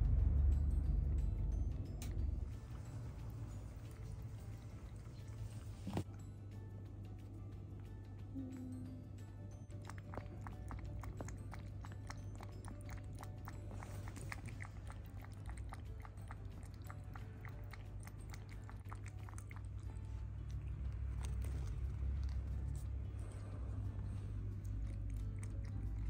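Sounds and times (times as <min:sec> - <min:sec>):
kitten lapping water from bowl: 0:09.5 - 0:26.0.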